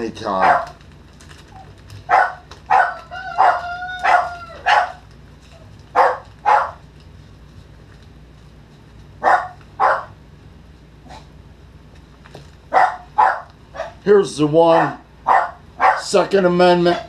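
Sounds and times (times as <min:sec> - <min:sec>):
dogs barking: 0:00.3 - 0:00.8, 0:01.6 - 0:05.1, 0:05.9 - 0:06.8, 0:09.2 - 0:10.2, 0:12.7 - 0:14.0, 0:14.7 - 0:16.2
dog whining: 0:01.5 - 0:05.0.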